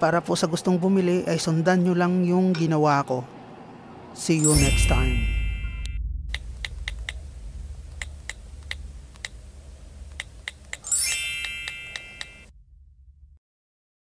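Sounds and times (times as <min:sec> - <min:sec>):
low steady hum: 0:03.7 - 0:13.4
shimmering chime with rising sweep: 0:04.4 - 0:10.2, 0:10.8 - 0:12.5.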